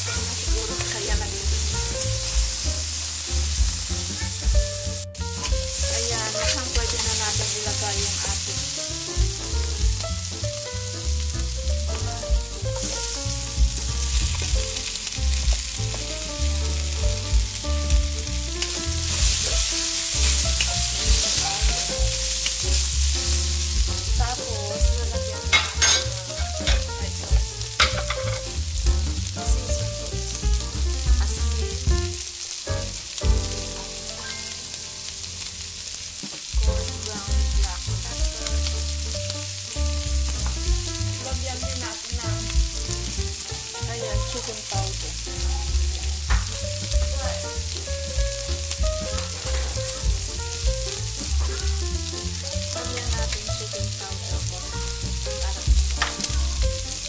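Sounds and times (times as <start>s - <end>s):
spatula scraping a pan: 0.0s - 1.2s
meat sizzling in a wok: 0.0s - 57.0s.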